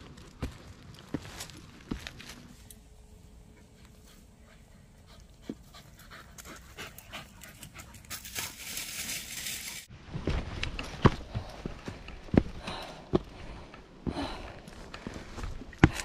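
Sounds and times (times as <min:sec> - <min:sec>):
dog panting: 0:03.6 - 0:08.5.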